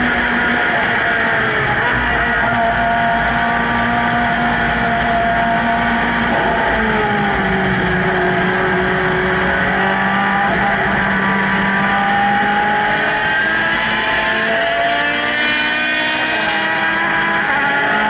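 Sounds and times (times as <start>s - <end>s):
race car engines at speed: 0.0s - 18.0s
wind and road noise: 0.0s - 18.0s.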